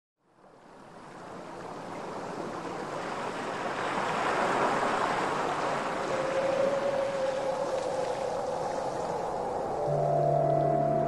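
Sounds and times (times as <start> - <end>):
wash like ocean surf: 0.3 - 11.0
ambient background music: 6.1 - 11.0.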